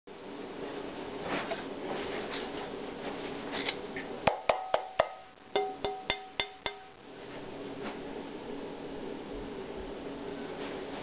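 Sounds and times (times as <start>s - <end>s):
frying pan struck by hand ringing: 4.3s - 7.0s.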